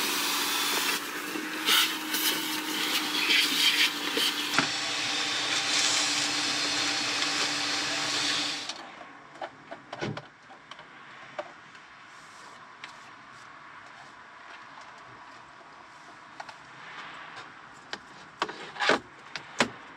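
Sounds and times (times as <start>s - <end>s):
vacuum cleaner running: 0.0s - 8.8s.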